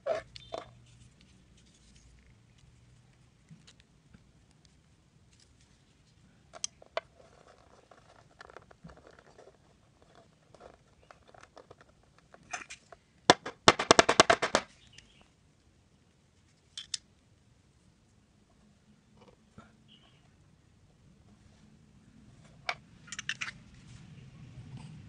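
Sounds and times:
rustling: 0.0 - 13.2.

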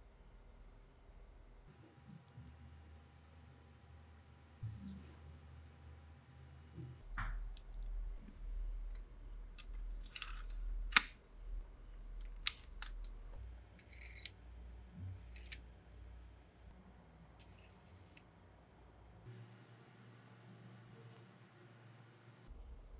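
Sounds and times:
faint low hum: 0.0 - 22.9
plastic parts clicking: 9.6 - 11.2, 12.2 - 13.2, 13.8 - 14.3.

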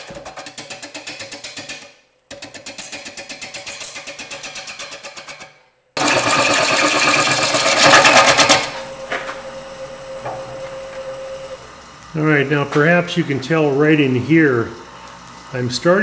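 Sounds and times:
lathe humming: 6.0 - 15.6
continuous wood cutting noise: 6.0 - 16.0.

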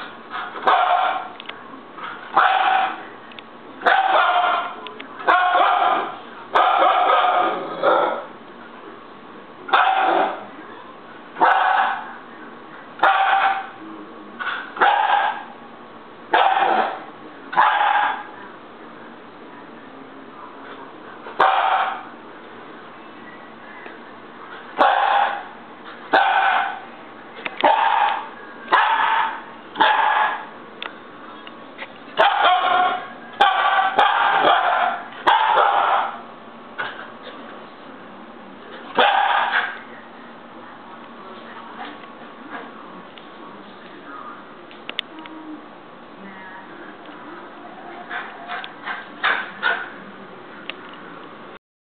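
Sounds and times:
puppy barking: 0.4 - 1.4, 2.3 - 3.1, 3.8 - 8.3, 9.7 - 10.4, 11.4 - 12.2, 13.0 - 13.8, 14.4 - 15.6, 16.3 - 18.4, 21.4 - 22.1, 24.8 - 26.9, 27.6 - 30.5, 32.2 - 37.0, 38.9 - 39.9, 48.0 - 50.0.

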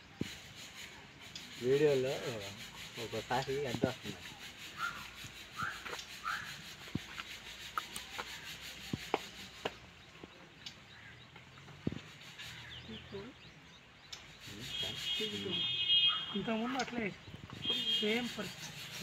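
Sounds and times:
bird chirps: 0.0 - 19.0
small knocks and rubbing: 3.2 - 10.4, 11.3 - 12.5.

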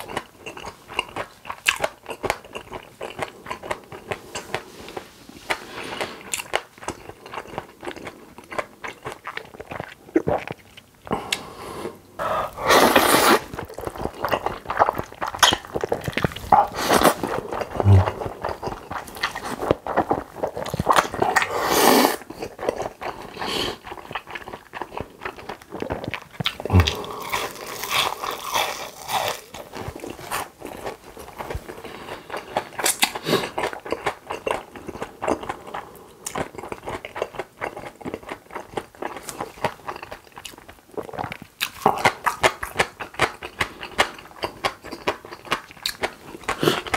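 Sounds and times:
crunching bites and chewing: 13.3 - 21.5, 23.9 - 35.6.

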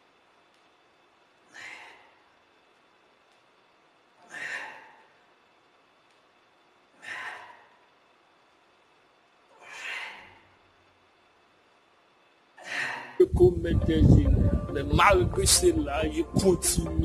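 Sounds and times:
person breathing strongly: 1.5 - 2.2, 4.2 - 5.2, 7.0 - 7.9.

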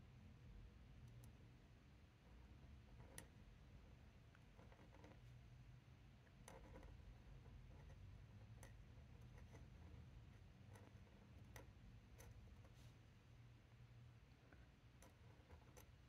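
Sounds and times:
low room hum: 0.0 - 16.0
pen nib tapping and scratching: 2.3 - 3.4, 4.3 - 5.3, 6.3 - 12.8, 14.9 - 16.0.

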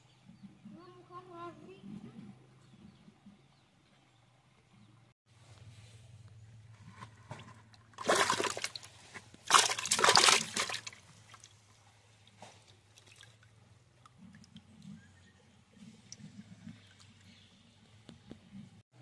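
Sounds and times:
water splashing and sloshing: 6.7 - 14.9.

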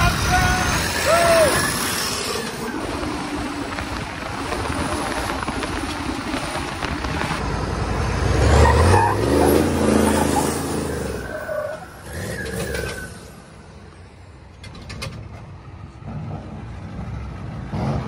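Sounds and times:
wind noise: 0.0 - 8.3
diesel engine driving: 0.0 - 18.0.

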